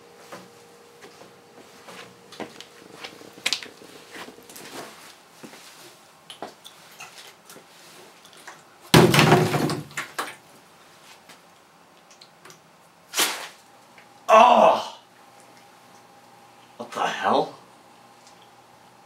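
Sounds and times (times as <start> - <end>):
plastic gas can knocks: 8.9 - 10.0.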